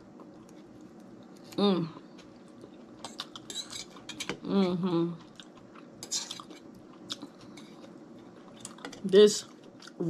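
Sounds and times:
person chewing: 0.0 - 4.4, 5.1 - 10.0
person humming: 1.6 - 2.0.

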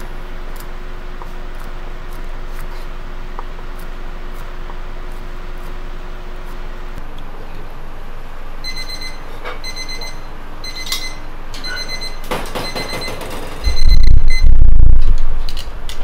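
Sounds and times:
kitchen timer beeping: 8.6 - 13.1
clatter of knocks: 12.3 - 13.6
loud low rumble: 13.7 - 16.0.

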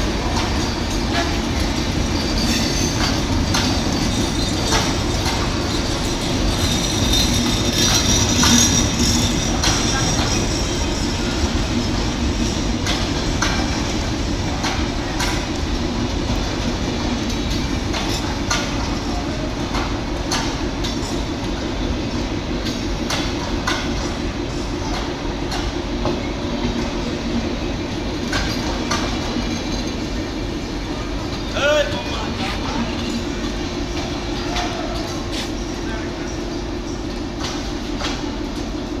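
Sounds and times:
train wheels rumbling on rails: 0.0 - 39.0
wheels clicking over rail joints: 0.2 - 21.3.

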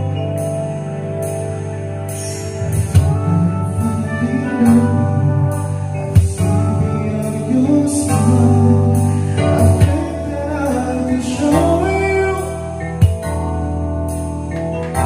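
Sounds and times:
karaoke band backing track: 0.0 - 15.0
person singing: 2.6 - 13.4.

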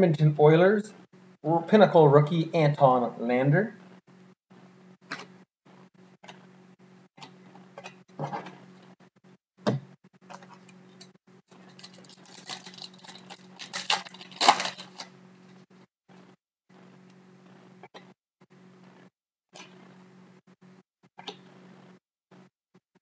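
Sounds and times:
wrapper crinkling and tearing: 11.5 - 15.2.

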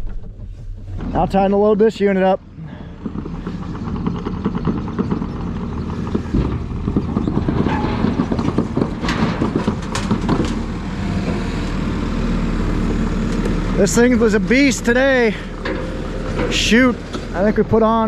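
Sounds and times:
skid loader diesel engine running: 0.0 - 18.0.

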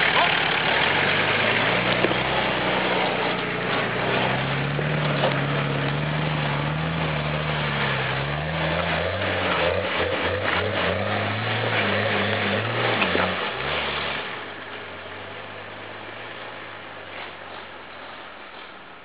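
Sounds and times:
engine pulling under load: 0.0 - 19.0.

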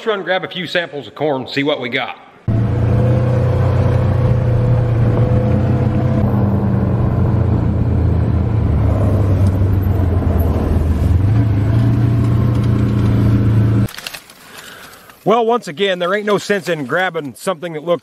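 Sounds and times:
vehicle engine humming: 2.5 - 13.9.

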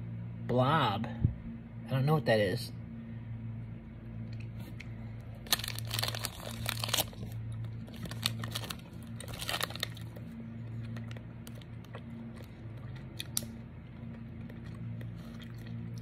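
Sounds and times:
low hum: 0.0 - 16.0
plastic pouch crinkling: 5.4 - 12.0.

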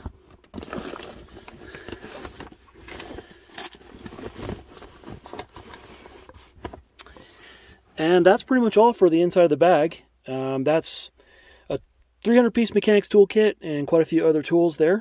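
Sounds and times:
fabric tool bag rustling: 0.0 - 6.9
metal tools clinking: 2.8 - 4.2.

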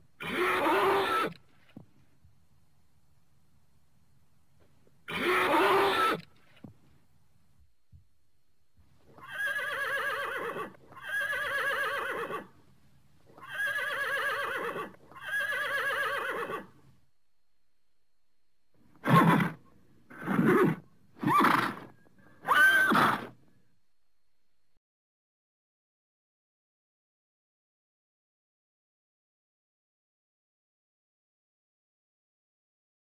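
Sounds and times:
horse whinnying: 0.2 - 1.4, 5.1 - 6.3, 9.2 - 12.5, 13.4 - 16.8, 19.0 - 23.4.

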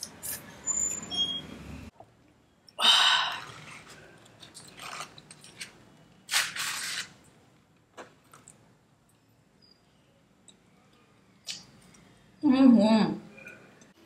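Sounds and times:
cardboard ripping: 6.3 - 7.1.

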